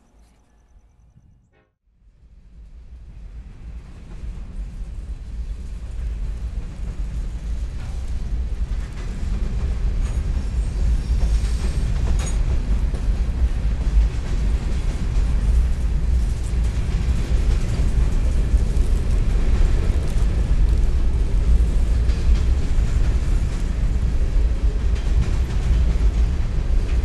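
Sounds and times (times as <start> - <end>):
faint high squeal: 0.0 - 1.5
train wheels rumbling on rail: 2.1 - 27.0.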